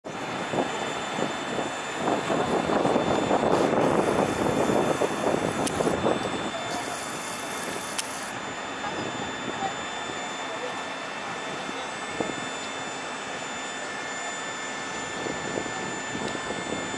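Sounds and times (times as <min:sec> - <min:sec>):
jet engine rushing: 0:00.2 - 0:10.4.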